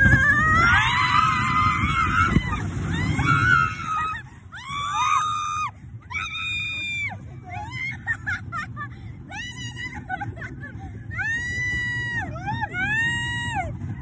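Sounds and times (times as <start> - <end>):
people screaming: 0.0 - 8.0
steady low rumble: 0.0 - 14.0.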